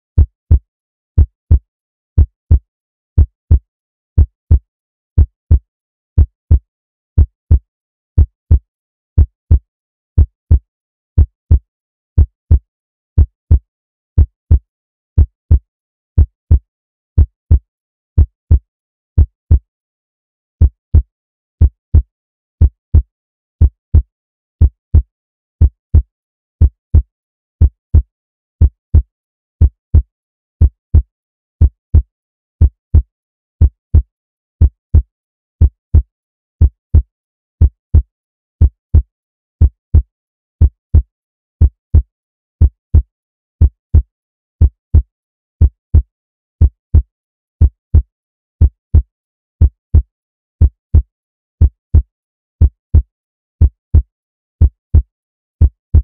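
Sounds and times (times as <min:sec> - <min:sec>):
heartbeat thumps: 0:20.6 - 0:56.0.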